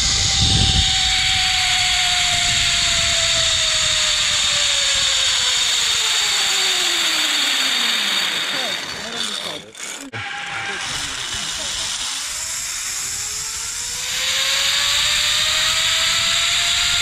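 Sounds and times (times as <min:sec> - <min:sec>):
wind rumble on microphone: 0:00.0 - 0:05.4
zipline pulleys whirring on cable: 0:00.0 - 0:17.0.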